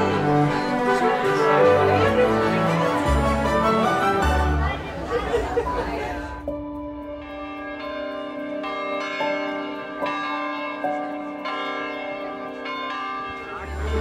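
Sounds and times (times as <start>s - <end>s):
church bells ringing: 0.0s - 14.0s
low bell tone: 6.4s - 14.0s.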